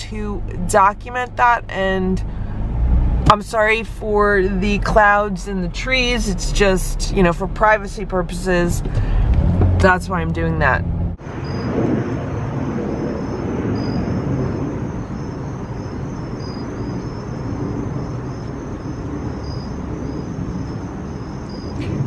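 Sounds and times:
outdoor background noise: 0:00.0 - 0:22.0
faint high chirps: 0:11.4 - 0:11.7.

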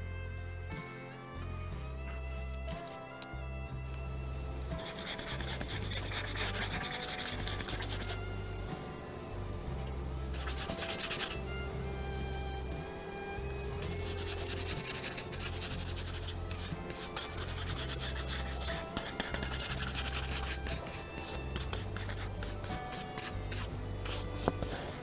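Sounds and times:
background music with bass line: 0:00.0 - 0:25.0
paintbrush scrubbing canvas: 0:04.8 - 0:08.2, 0:10.4 - 0:11.4, 0:13.8 - 0:25.0.

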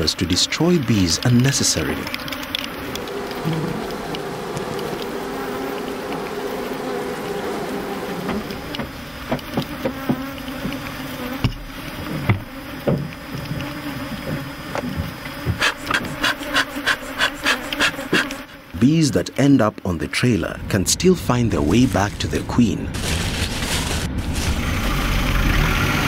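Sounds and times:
bees buzzing: 0:00.0 - 0:20.4.

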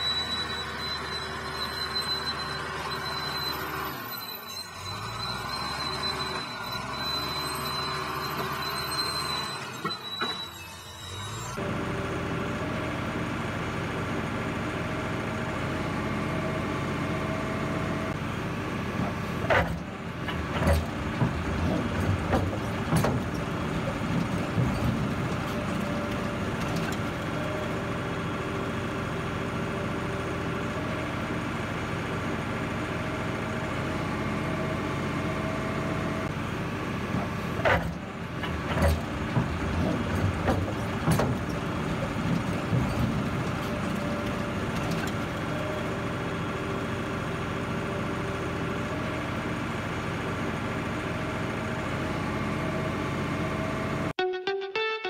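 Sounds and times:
combine harvester running: 0:00.0 - 0:54.1
metallic knocks and clanks: 0:19.0 - 0:27.4, 0:37.2 - 0:45.4.

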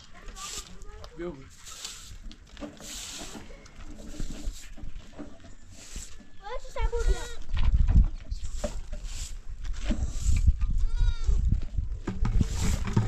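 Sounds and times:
footsteps on stony ground: 0:00.0 - 0:13.0
goat bleating: 0:06.9 - 0:07.5, 0:10.8 - 0:11.4
low rumble on microphone: 0:07.2 - 0:13.0.

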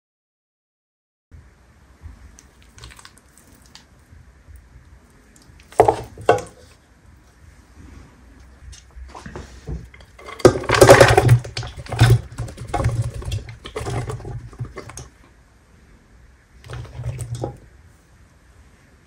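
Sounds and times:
faint knocks and rustles: 0:05.5 - 0:15.3.

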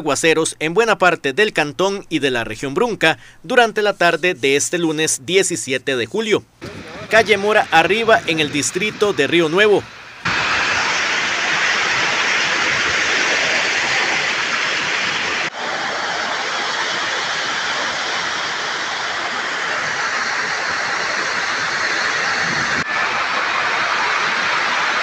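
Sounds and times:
heavy rain falling: 0:09.8 - 0:25.0.

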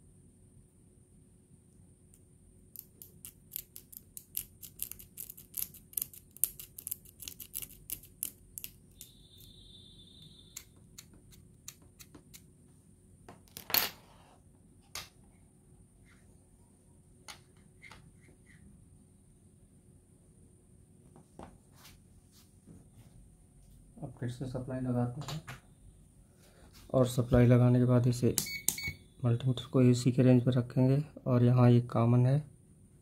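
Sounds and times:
high steady tone: 0:08.9 - 0:10.8.

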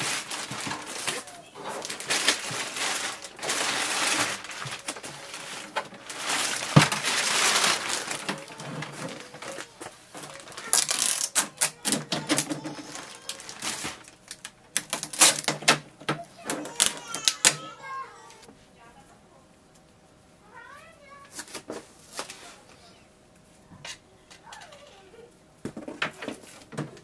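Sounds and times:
packing tape tearing off plastic: 0:00.0 - 0:15.9, 0:16.6 - 0:17.7, 0:21.3 - 0:22.6.

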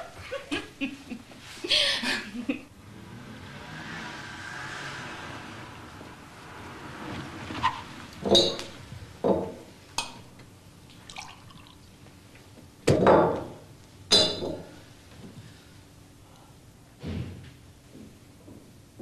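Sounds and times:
liquid pouring: 0:10.9 - 0:12.0.

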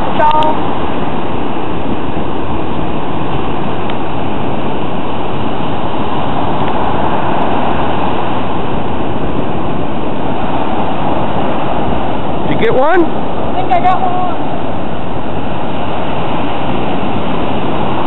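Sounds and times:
breaking surf: 0:00.0 - 0:18.0
wind roaring on microphone: 0:00.0 - 0:18.0.

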